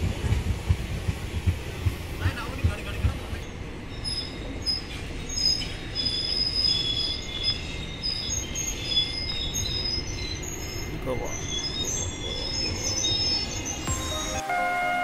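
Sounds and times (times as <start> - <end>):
train wheels squealing: 3.4 - 13.9.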